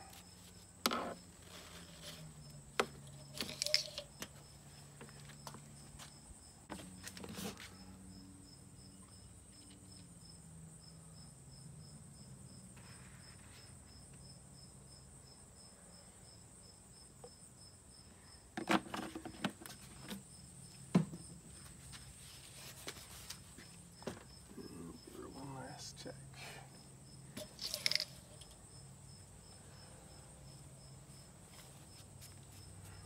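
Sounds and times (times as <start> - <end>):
insects chirping: 0.0 - 33.0
plastic jug knocks and clatter: 18.6 - 20.2, 20.9 - 21.6.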